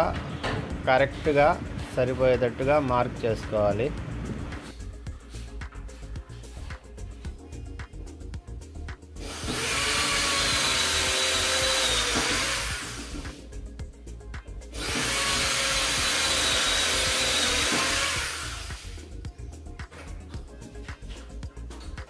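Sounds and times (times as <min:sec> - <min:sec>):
electric drill whining: 0:09.2 - 0:13.4, 0:14.7 - 0:19.0.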